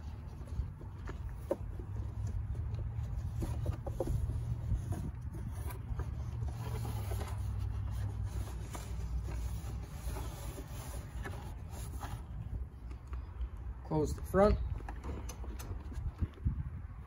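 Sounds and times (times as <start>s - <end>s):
rubber rubbing and scraping: 0.0s - 12.7s.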